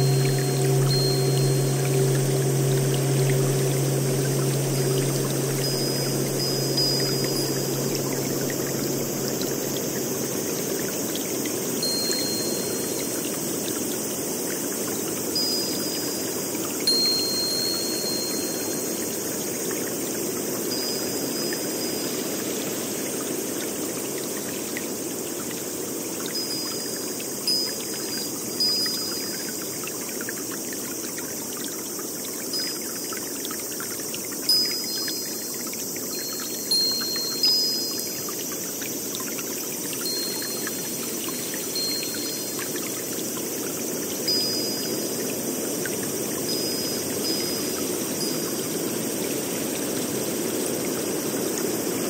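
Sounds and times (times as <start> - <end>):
short high chirping tones: 0.0 - 10.6
running water rushing: 0.0 - 52.0.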